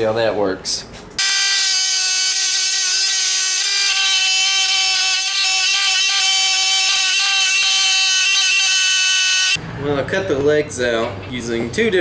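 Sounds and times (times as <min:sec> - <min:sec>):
scroll saw motor whine: 0:01.2 - 0:09.6.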